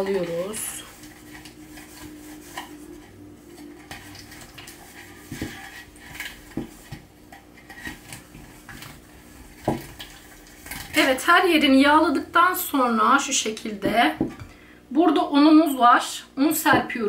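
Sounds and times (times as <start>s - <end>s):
hand rubbing oil in metal pan: 0.0s - 11.7s.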